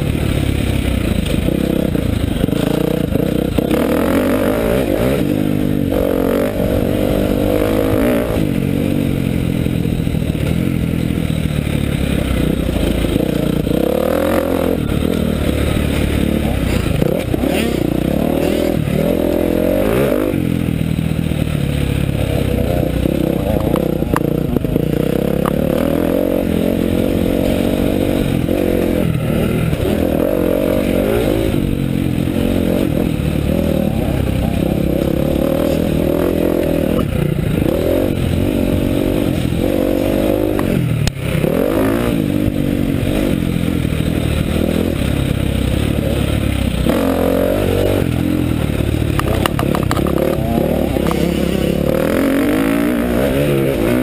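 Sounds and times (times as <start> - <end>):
motocross bike engine revving: 0.0 - 54.0.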